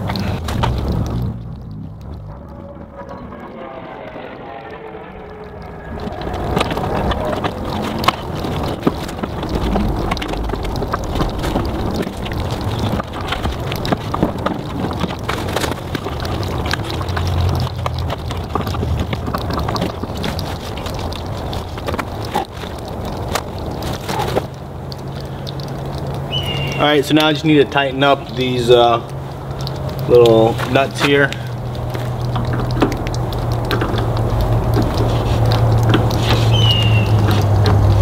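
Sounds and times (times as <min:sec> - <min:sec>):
wind buffeting microphone: 0:04.9 - 0:24.8
small clicks and knocks: 0:29.3 - 0:38.0.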